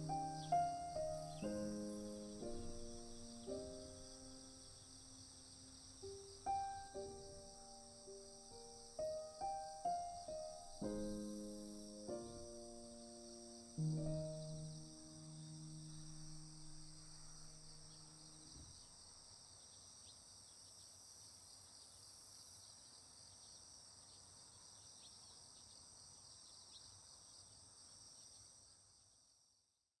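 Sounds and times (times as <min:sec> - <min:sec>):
held musical chord: 0:00.0 - 0:04.6
crickets chirring: 0:00.0 - 0:29.5.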